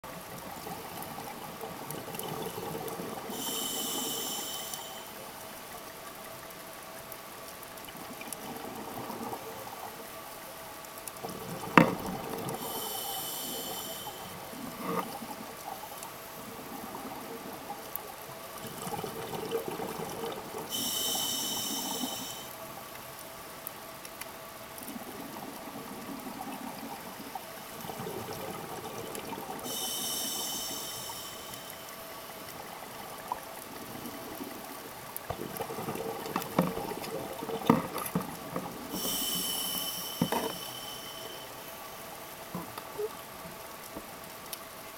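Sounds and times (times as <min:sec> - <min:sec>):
regulator hissing inhalations: 0:03.3 - 0:05.2, 0:12.6 - 0:14.4, 0:20.7 - 0:22.5, 0:29.6 - 0:32.0, 0:38.9 - 0:41.8.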